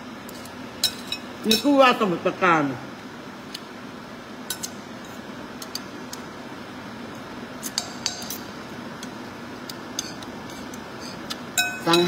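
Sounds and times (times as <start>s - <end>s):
metal spoon clinking on bowl: 7.6s - 8.5s, 11.5s - 12.0s.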